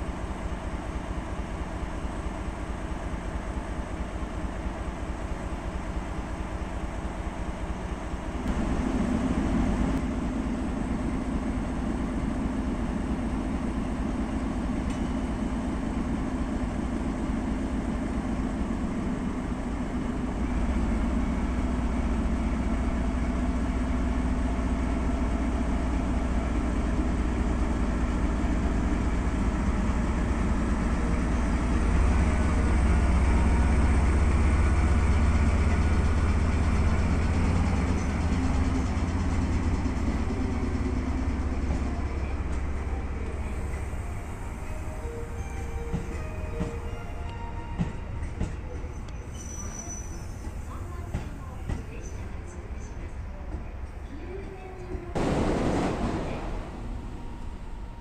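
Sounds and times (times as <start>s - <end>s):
locomotive diesel engine droning: 0.0s - 58.0s.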